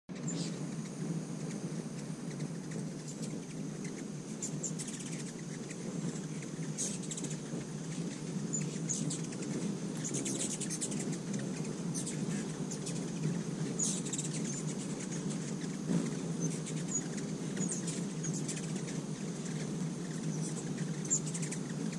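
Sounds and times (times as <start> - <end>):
hummingbirds chattering: 0.1 - 21.9
steady low hum: 0.1 - 21.9.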